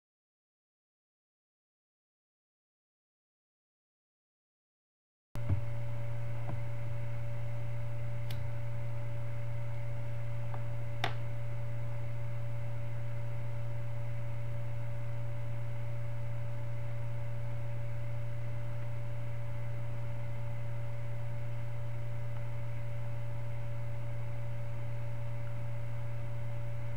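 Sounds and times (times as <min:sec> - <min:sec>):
steady electrical hum: 0:05.4 - 0:26.9.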